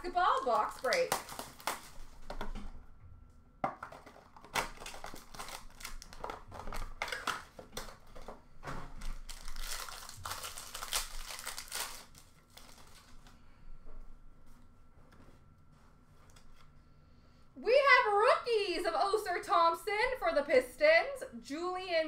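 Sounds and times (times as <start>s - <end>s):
plastic wrapping crinkling: 0.0s - 2.6s, 3.8s - 13.3s.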